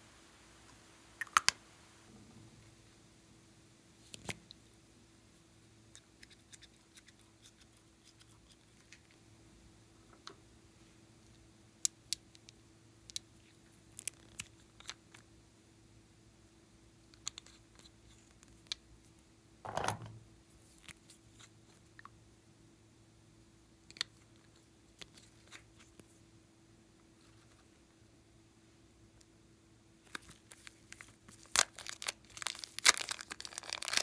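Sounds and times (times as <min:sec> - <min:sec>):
faint steady hum: 0:00.0 - 0:34.0.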